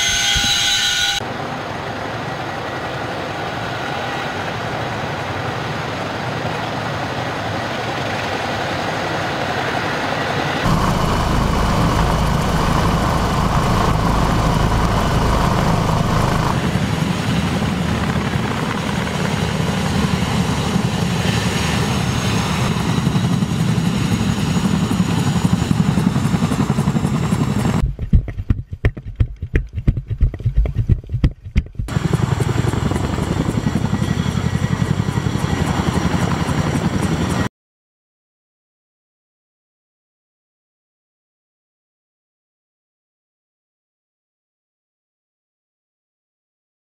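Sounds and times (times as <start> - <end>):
helicopter rotors running: 1.3 - 37.5
heavy low buffeting: 10.7 - 16.8.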